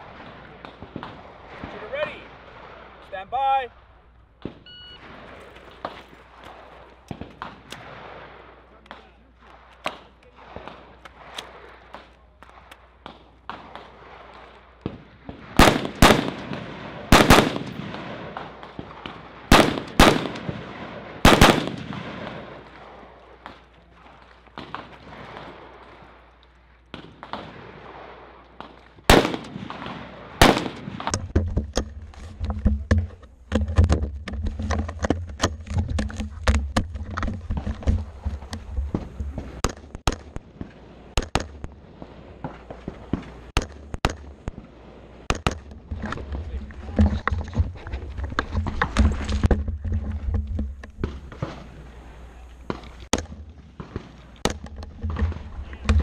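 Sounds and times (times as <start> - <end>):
rifle shots: 4.4 - 23.7, 26.9 - 31.2.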